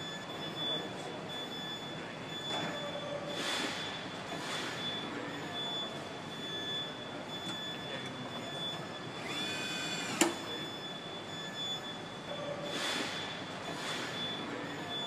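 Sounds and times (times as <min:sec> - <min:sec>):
factory noise: 0:00.0 - 0:15.0
machinery high whine: 0:09.0 - 0:10.8.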